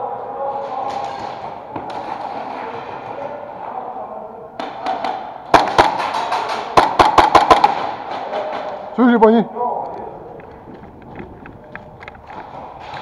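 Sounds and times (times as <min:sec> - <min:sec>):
airsoft gunshots echoing: 0:04.6 - 0:08.7.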